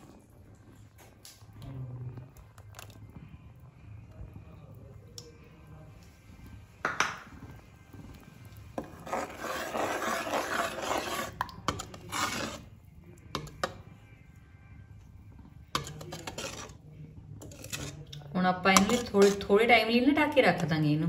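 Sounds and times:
metal ladle scraping a pot: 2.2 - 3.0, 8.0 - 14.0, 15.4 - 19.7.

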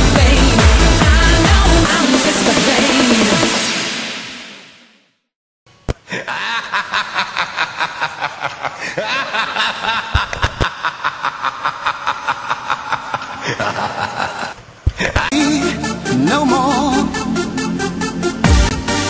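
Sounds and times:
electronic music: 0.0 - 4.6, 15.2 - 19.0
person snickering: 6.0 - 15.7.

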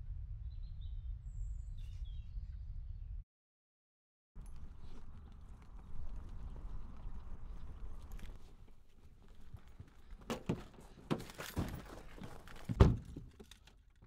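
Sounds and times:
knocks and rustles: 9.2 - 14.0.

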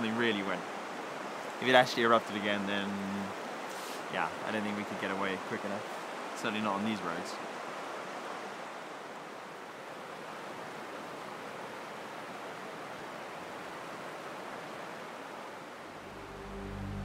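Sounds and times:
steady rushing noise: 15.9 - 17.0.

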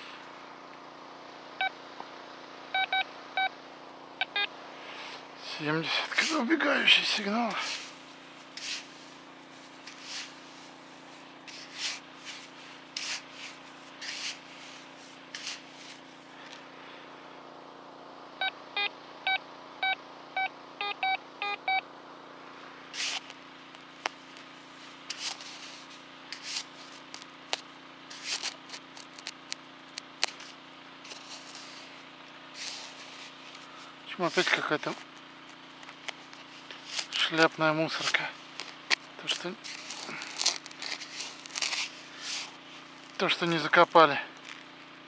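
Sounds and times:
steady low hum: 0.0 - 45.0
metal detector beeps: 2.7 - 3.5, 4.2 - 4.5, 18.4 - 21.8
hand digging in sand: 7.5 - 16.2, 23.0 - 23.3, 24.8 - 27.1, 28.1 - 29.2, 31.0 - 35.0, 38.0 - 43.0.

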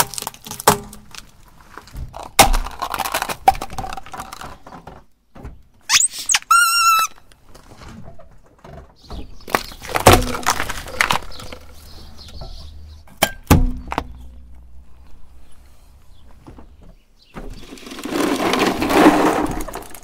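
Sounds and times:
metal can crushed: 0.0 - 4.8, 9.5 - 11.8, 17.5 - 20.0
plastic tubes cracking and crunching: 0.0 - 5.2, 9.4 - 12.1, 17.5 - 20.0
bicycle horn squeal and honk: 5.9 - 7.2.

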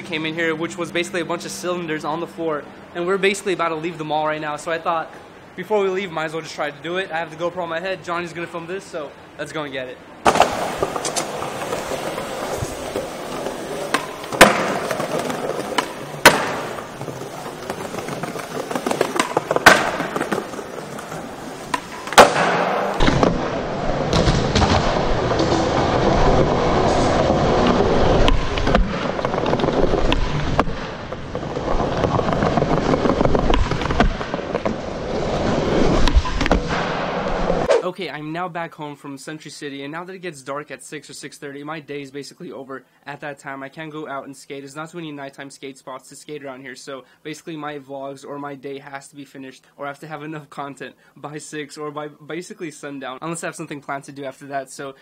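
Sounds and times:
skateboard wheels rolling: 10.2 - 37.7
skateboard clacking on floor: 10.3 - 23.3.

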